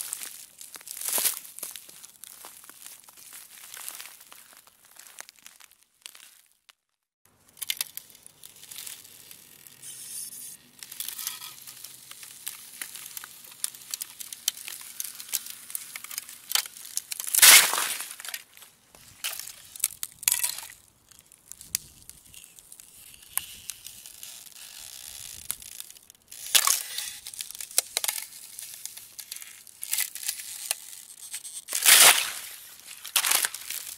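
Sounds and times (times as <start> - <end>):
ice crackling and creaking: 0.0 - 33.9
loud ice cracks: 7.4 - 9.8, 10.8 - 18.6, 19.2 - 33.9.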